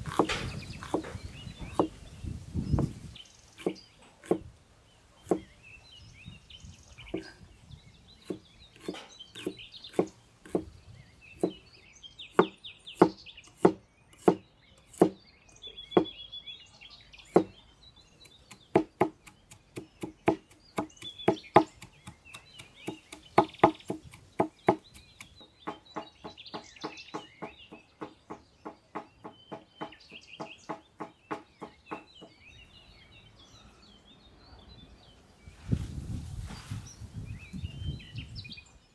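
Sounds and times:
cleaver chopping on wooden block: 0.0s - 2.0s, 3.6s - 4.5s, 5.2s - 5.5s, 8.2s - 10.7s, 12.3s - 15.2s, 17.3s - 17.6s, 18.2s - 32.3s
birds chirping: 0.0s - 38.9s.

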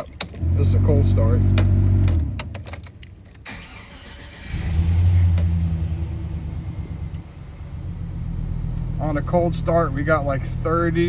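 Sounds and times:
starter motor cranking: 3.5s - 4.8s
car engine idling: 3.6s - 11.0s.

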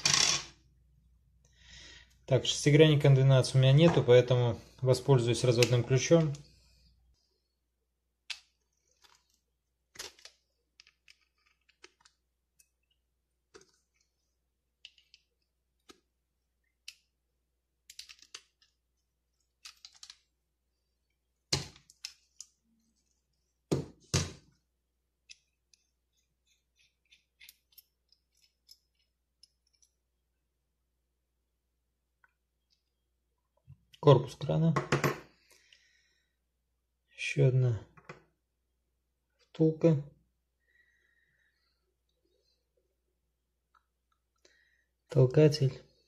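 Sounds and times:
small metal clicks and knocks: 17.9s - 18.8s, 25.2s - 30.0s.

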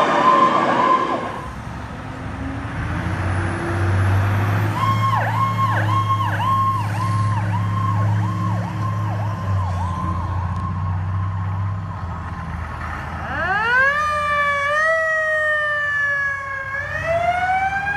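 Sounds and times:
electronic siren wailing: 0.0s - 1.5s, 4.8s - 10.9s.

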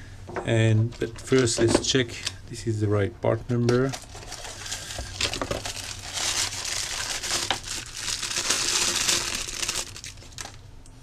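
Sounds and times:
packaging wrap crinkling: 3.7s - 10.6s.

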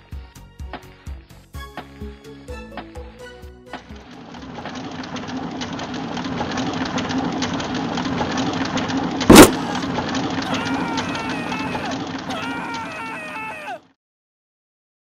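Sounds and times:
mine cart rattling on rails: 3.8s - 13.6s
loud bang: 9.3s - 9.8s.

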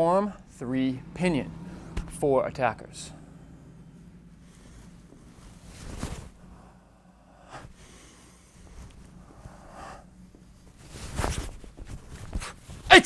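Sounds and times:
cloth swishes: 4.6s - 6.5s, 10.8s - 12.9s.

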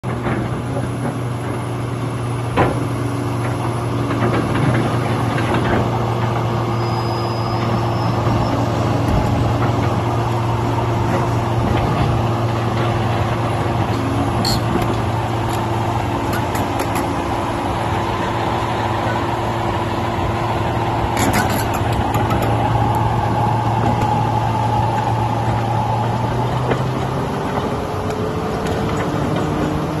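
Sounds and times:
excavator diesel engine running: 0.0s - 30.0s
sharp metallic knocks: 14.4s - 17.3s.

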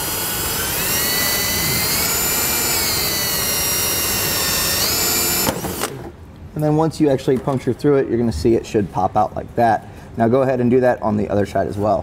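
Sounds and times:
cordless drill motor whine: 0.0s - 6.1s.

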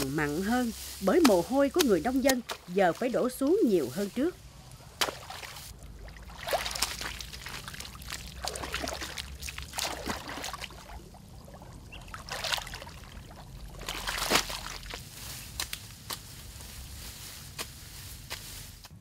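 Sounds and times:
hands working wet mud: 0.0s - 4.2s, 4.9s - 19.0s
water splashing: 5.0s - 15.1s
water pouring and dribbling: 5.1s - 15.0s.

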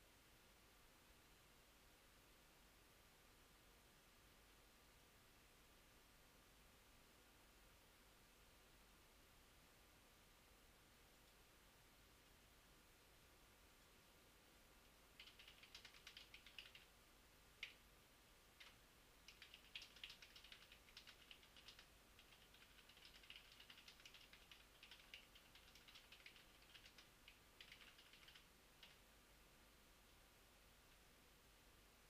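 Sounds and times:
typing on computer keyboard: 15.2s - 16.9s, 17.6s - 17.8s, 18.6s - 29.0s.

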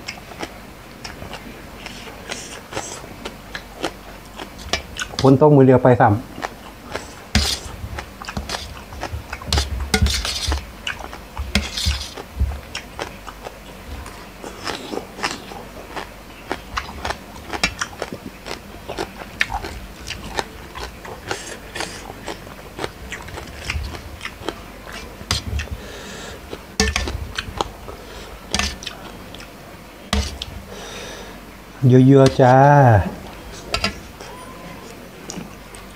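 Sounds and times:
chewing and crunching: 0.0s - 5.4s, 6.2s - 31.2s, 33.1s - 35.9s
metal spoon scraping a bowl: 9.5s - 10.6s, 11.6s - 12.2s.

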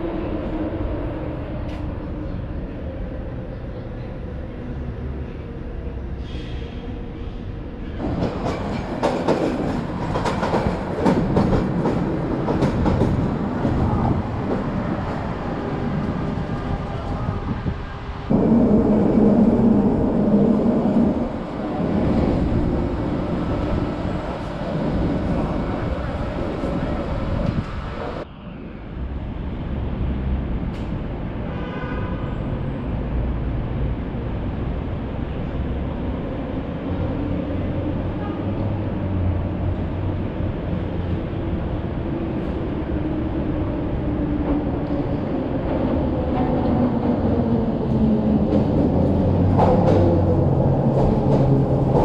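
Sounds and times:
train rumbling overhead: 0.0s - 52.0s
train wheels clicking and knocking: 8.1s - 14.7s.

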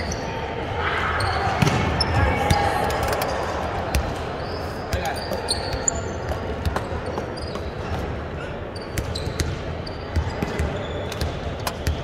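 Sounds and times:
basketball bouncing on court: 8.8s - 12.0s.

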